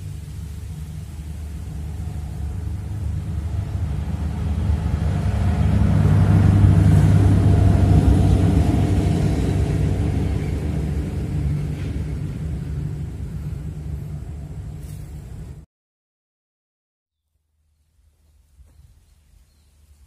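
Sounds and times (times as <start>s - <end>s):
engine passing by: 0.0s - 15.6s.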